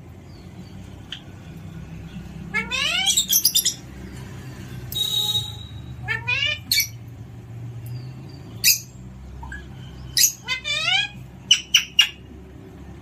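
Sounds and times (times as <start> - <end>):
parrot calling and squawking: 2.4 - 4.0, 5.5 - 7.0, 8.6 - 12.3.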